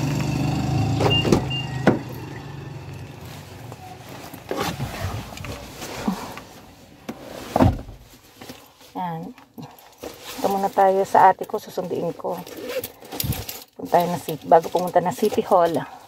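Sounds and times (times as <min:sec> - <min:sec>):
engine hum: 0:00.0 - 0:06.9
car door shutting thump: 0:01.2 - 0:02.1.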